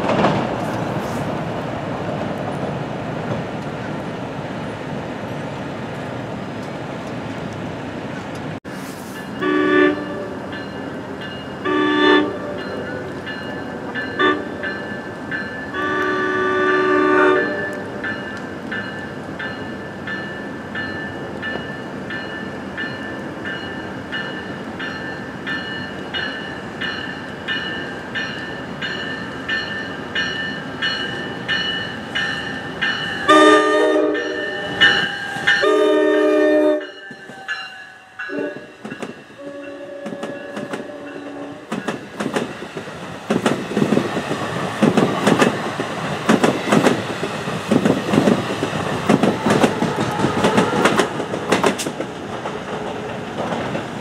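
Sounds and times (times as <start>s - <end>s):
train rumbling past: 0.0s - 54.0s
train bell ringing: 9.1s - 16.2s, 17.3s - 36.2s, 36.8s - 42.0s
train horn blasts: 9.4s - 10.5s, 11.6s - 13.0s, 14.2s - 14.6s, 15.7s - 18.0s, 33.2s - 37.5s, 38.2s - 38.8s, 39.4s - 41.7s, 49.4s - 51.2s.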